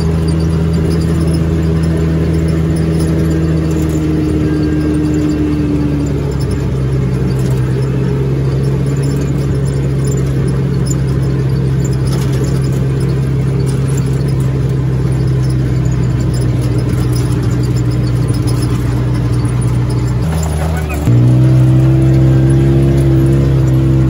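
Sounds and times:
atv engine running: 0:00.0 - 0:24.0.

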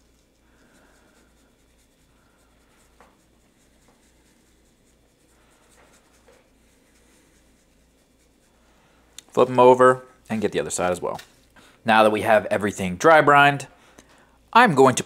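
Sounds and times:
spice shaker hissing shakes: 0:00.0 - 0:09.0.

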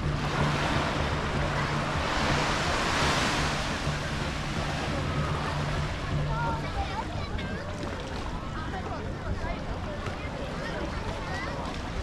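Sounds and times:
low hum: 0:00.0 - 0:06.7
sea waves washing onto shore: 0:00.0 - 0:09.2.

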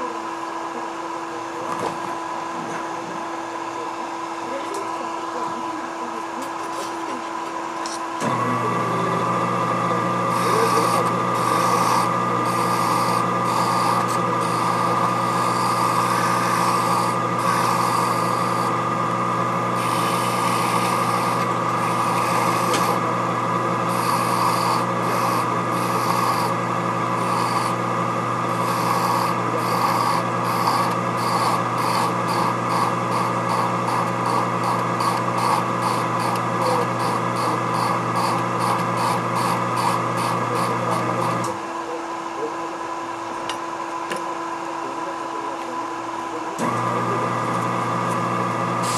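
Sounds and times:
lathe motor hum: 0:00.0 - 0:48.9
file rasping on metal: 0:10.2 - 0:18.8, 0:19.7 - 0:27.8, 0:28.5 - 0:41.6.

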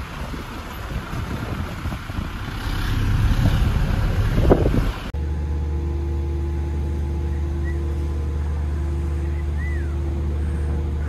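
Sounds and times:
wind gusting against microphone: 0:00.0 - 0:05.2
low machinery hum: 0:00.0 - 0:11.0.

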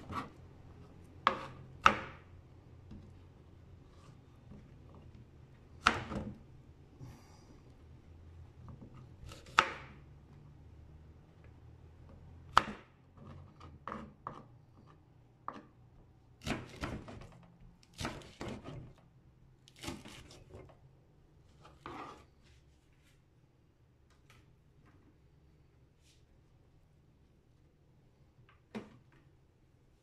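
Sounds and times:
knife chopping on cutting board: 0:01.2 - 0:02.2, 0:08.9 - 0:09.9, 0:12.5 - 0:12.9, 0:16.4 - 0:17.3, 0:17.9 - 0:18.9.

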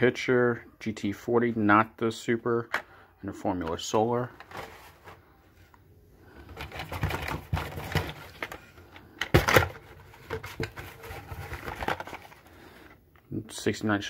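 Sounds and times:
plastic packaging clicks and rustles: 0:06.4 - 0:13.0.

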